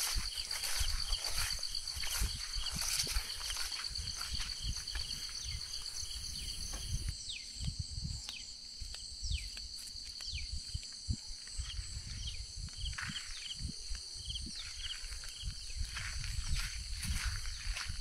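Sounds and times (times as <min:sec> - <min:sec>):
insects trilling in chorus: 0:00.0 - 0:18.0.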